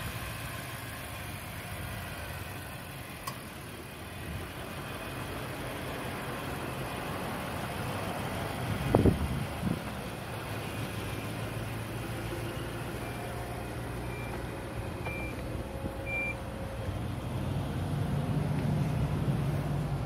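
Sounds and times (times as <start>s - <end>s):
short high warning beeps: 14.1s - 15.4s, 16.1s - 16.4s.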